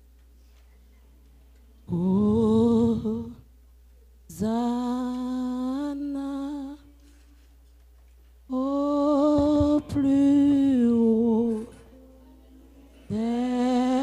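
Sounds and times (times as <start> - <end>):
woman singing solo: 8.5 - 12.4, 13.0 - 14.0.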